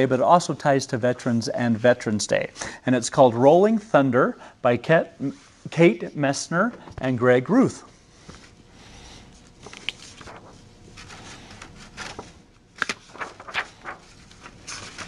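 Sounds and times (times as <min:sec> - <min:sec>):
book pages rustling: 0:09.4 - 0:15.0.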